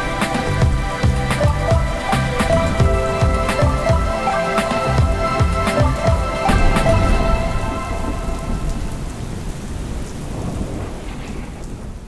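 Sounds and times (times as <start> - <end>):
rain falling steadily: 0.0 - 12.0
low rumble of thunder: 5.0 - 12.0.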